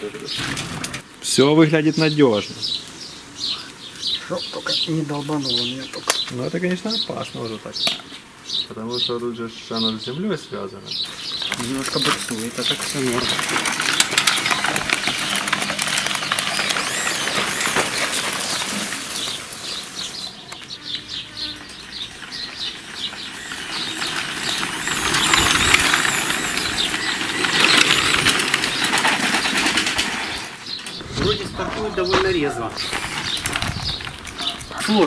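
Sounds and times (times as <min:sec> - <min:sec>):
birds chirping: 0:00.0 - 0:35.0
electric motor clicking whir: 0:11.5 - 0:19.4, 0:21.7 - 0:30.3
whirring rush: 0:12.7 - 0:20.3, 0:21.8 - 0:34.8.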